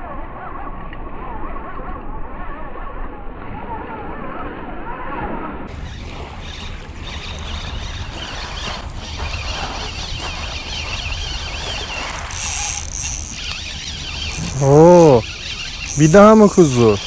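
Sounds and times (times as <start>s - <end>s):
wind rumble on microphone: 0.0s - 16.0s
waves washing on pebble beach: 5.7s - 12.4s
spinning reel whirring: 5.8s - 17.0s.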